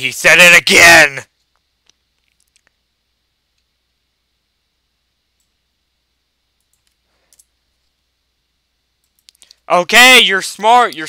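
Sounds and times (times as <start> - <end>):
faint computer clicks: 6.6 - 8.0, 9.0 - 9.6.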